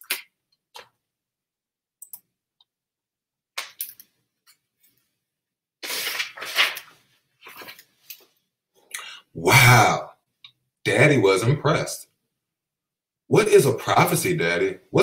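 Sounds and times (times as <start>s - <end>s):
page turning rustle: 5.8s - 8.4s.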